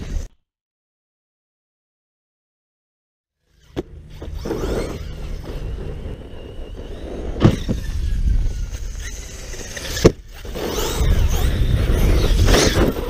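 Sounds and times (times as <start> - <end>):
electric motor whining: 3.4 - 13.0
toy truck thumping on ground: 7.4 - 8.0, 9.0 - 13.0.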